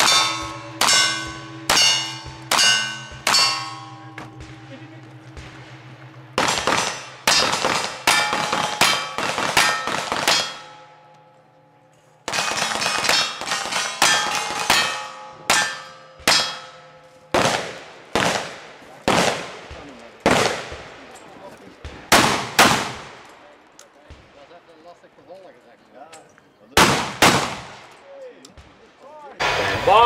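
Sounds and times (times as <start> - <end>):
steel plate clanging: 0.0 - 11.3, 12.3 - 17.3.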